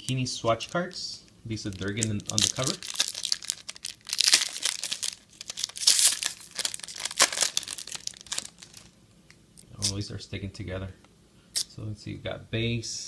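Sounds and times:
foil wrapper tearing and crumpling: 0:01.6 - 0:09.0.

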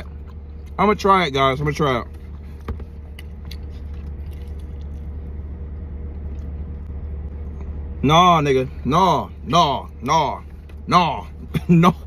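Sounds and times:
low hum inside a car: 0:00.0 - 0:12.0
man chewing meat: 0:02.1 - 0:07.8.

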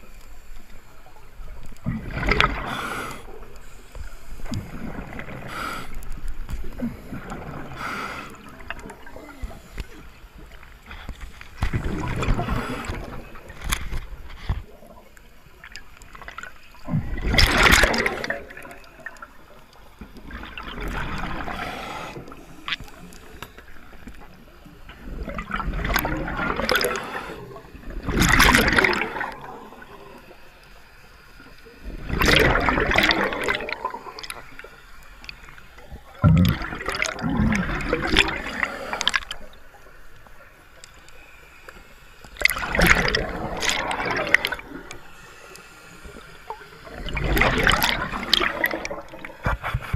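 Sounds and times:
exhaled air bubbling underwater: 0:00.0 - 0:49.9
diver breathing through regulator: 0:02.6 - 0:10.1, 0:12.2 - 0:13.3, 0:21.2 - 0:23.4, 0:38.1 - 0:39.5.

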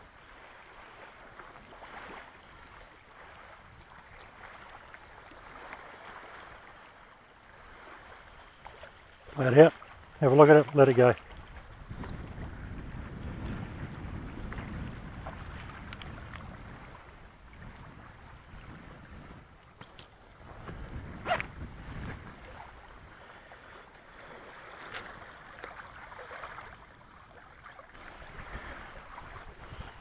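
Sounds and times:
waves lapping on stony shore: 0:00.0 - 0:30.0
wind buffeting microphone: 0:09.3 - 0:30.0.

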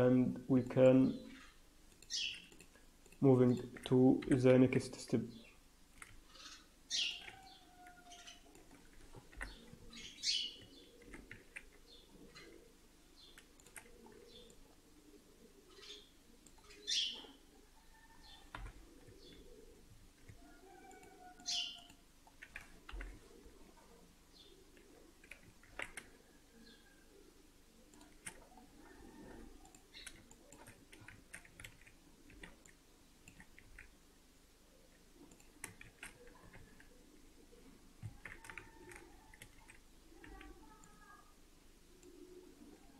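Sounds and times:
bird chirping: 0:01.1 - 0:02.6, 0:06.3 - 0:08.6, 0:09.4 - 0:11.2, 0:15.7 - 0:19.8, 0:20.4 - 0:22.0
computer mouse and keyboard clicks: 0:06.0 - 0:06.2, 0:13.4 - 0:14.6, 0:24.8 - 0:26.1, 0:27.9 - 0:28.5, 0:29.6 - 0:34.0, 0:35.2 - 0:36.9, 0:38.0 - 0:41.0
mouse and keyboard clicks: 0:35.2 - 0:36.9.

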